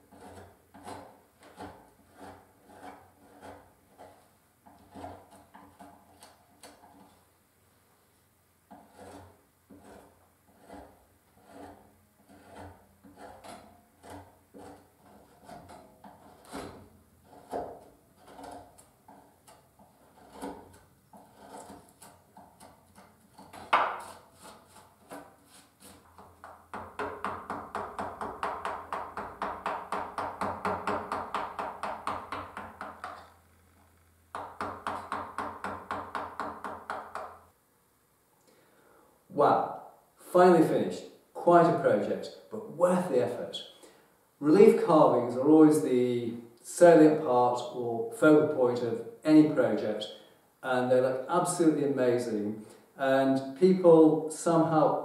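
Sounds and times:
carving tools cutting wood: 0.0s - 7.2s, 8.7s - 33.5s, 34.4s - 37.4s.

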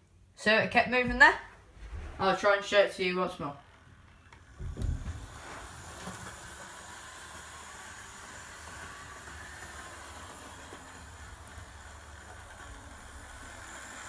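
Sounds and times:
model train motor whirring: 4.0s - 14.0s
handling thump: 4.6s - 5.4s.

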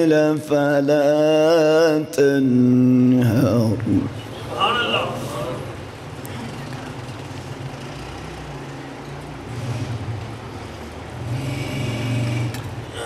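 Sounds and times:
vehicle engine humming: 3.9s - 13.0s.

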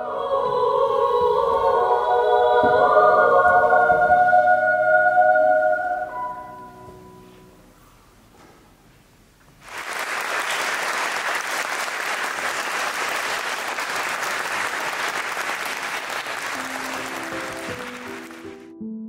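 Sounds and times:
soft piano notes: 6.0s - 8.8s
hands clapping: 9.6s - 18.7s.

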